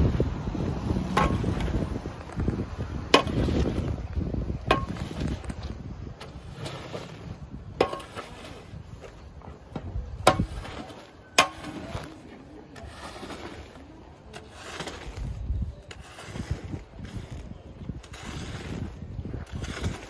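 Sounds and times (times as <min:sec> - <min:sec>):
squeegee swishing through wet rug: 0:10.4 - 0:20.0.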